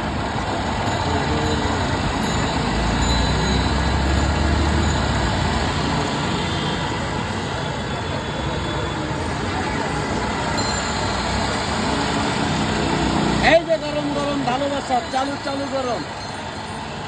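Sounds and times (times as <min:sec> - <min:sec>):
street traffic: 0:00.0 - 0:17.0.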